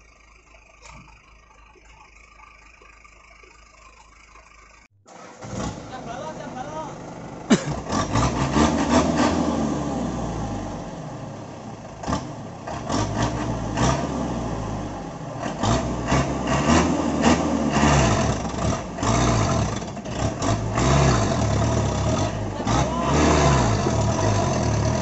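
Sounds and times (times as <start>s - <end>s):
wheels spinning in sand: 0.0s - 6.2s
diesel truck engine revving: 4.8s - 25.0s.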